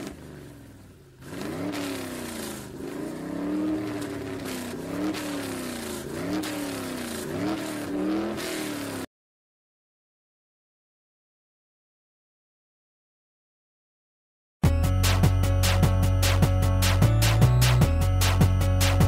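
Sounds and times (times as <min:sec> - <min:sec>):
engine revving: 0:00.0 - 0:09.1.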